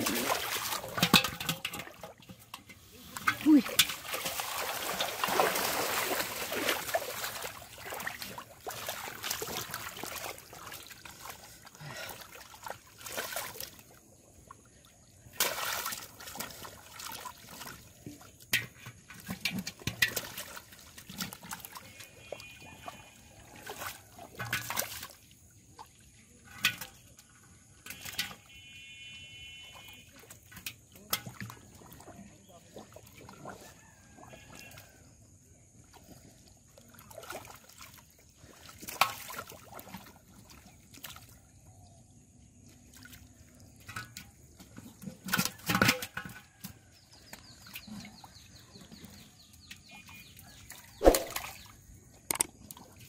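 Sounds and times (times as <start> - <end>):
foot kicking through water: 0.0 - 2.4, 3.1 - 13.8, 47.0 - 51.7
fish thrashing in shallow water: 0.0 - 42.3, 42.9 - 53.0.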